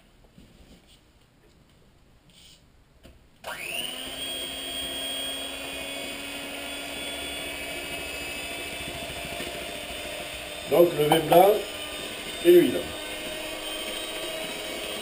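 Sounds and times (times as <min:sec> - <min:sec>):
electric hand mixer whining: 0:03.4 - 0:15.0.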